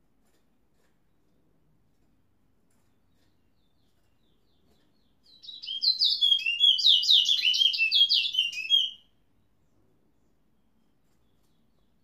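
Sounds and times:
finch chirping and warbling: 0:03.1 - 0:09.0.

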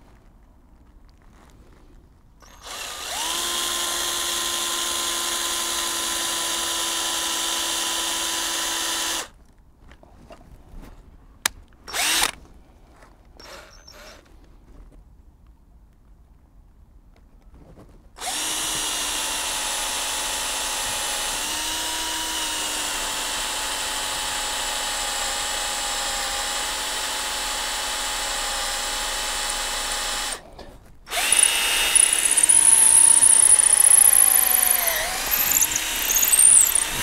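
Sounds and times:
drill bit squealing: 0:02.4 - 0:03.5, 0:13.4 - 0:14.2, 0:31.1 - 0:37.0
cordless drill boring through wood: 0:02.4 - 0:09.3, 0:11.9 - 0:12.4, 0:13.4 - 0:14.3, 0:18.2 - 0:30.4, 0:31.1 - 0:37.0.

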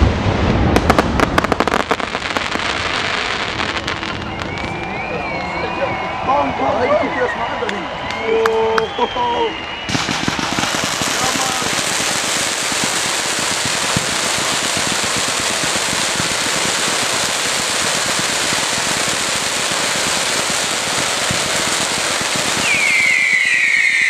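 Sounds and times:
fireworks crackling: 0:00.0 - 0:06.2, 0:07.9 - 0:24.0
high falling whistle: 0:03.6 - 0:11.7, 0:22.4 - 0:24.0.

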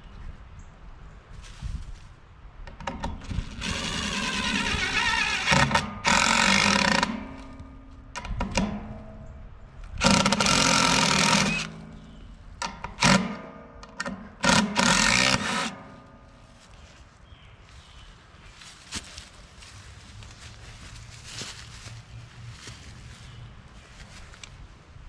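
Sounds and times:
cordless drill driving screws: 0:03.2 - 0:07.2, 0:10.0 - 0:11.8, 0:13.0 - 0:13.3, 0:14.4 - 0:15.8.

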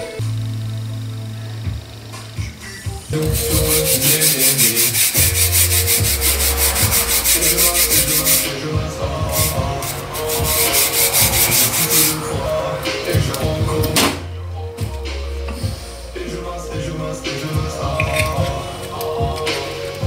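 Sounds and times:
wire brush scrubbing metal file: 0:03.2 - 0:08.6, 0:09.3 - 0:12.3.

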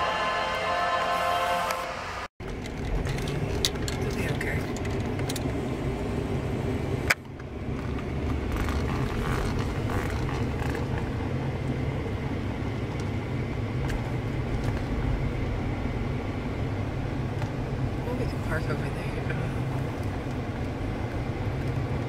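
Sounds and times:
train rumbling past: 0:00.0 - 0:07.7.

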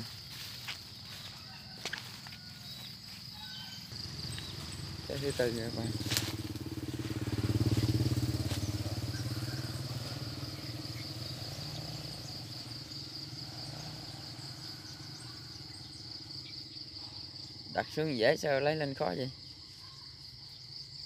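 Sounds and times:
insects droning: 0:00.0 - 0:21.0
small engine running: 0:03.0 - 0:16.5.

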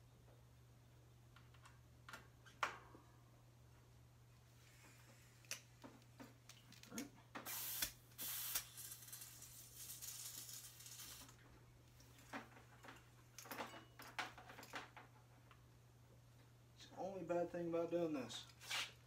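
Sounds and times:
compressed air hissing: 0:07.4 - 0:09.2.

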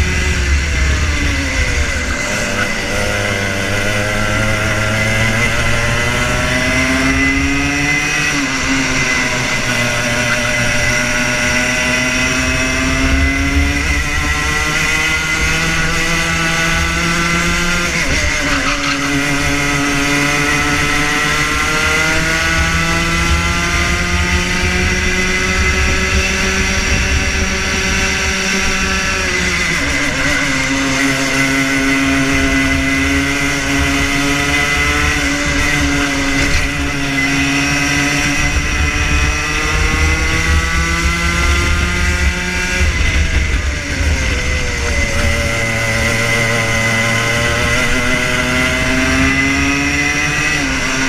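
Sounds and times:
kart engine revving: 0:00.0 - 0:51.0.

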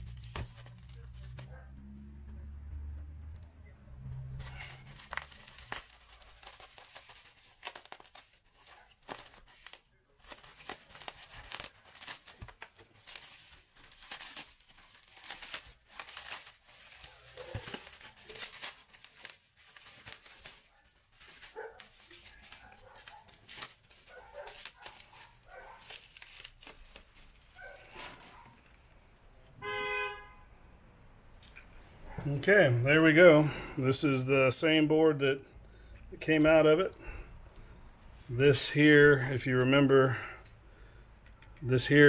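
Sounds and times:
plastic and bubble wrap crinkling: 0:00.0 - 0:01.6, 0:04.3 - 0:29.0.

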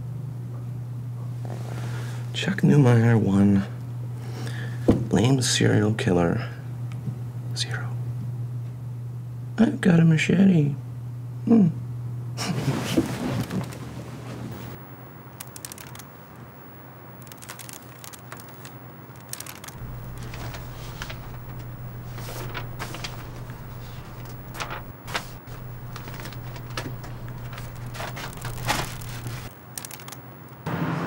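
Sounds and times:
photographs rustling and slapping: 0:17.2 - 0:30.2
low steady hum: 0:19.7 - 0:29.5.

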